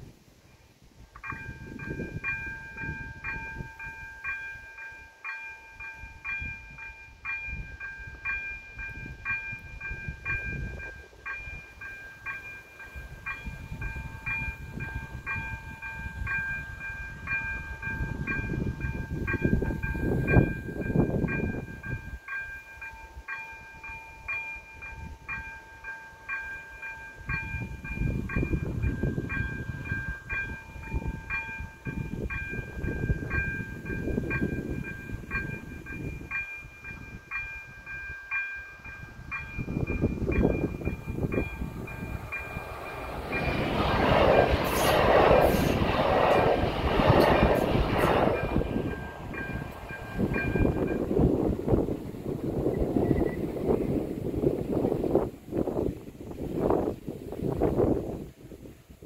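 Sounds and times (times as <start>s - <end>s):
level crossing warning bell: 1.2s - 54.0s
low rushing noise: 39.1s - 56.4s.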